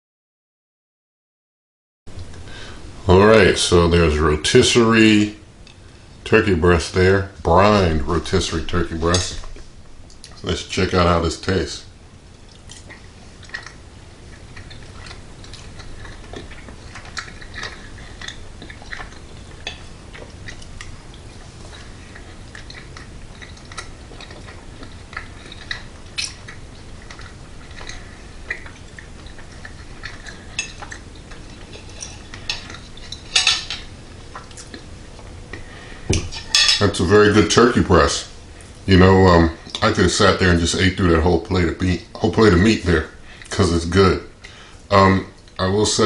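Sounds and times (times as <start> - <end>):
quiet chewing: 7.8 - 11.1, 11.8 - 36.6
cutlery clatter: 31.8 - 33.9.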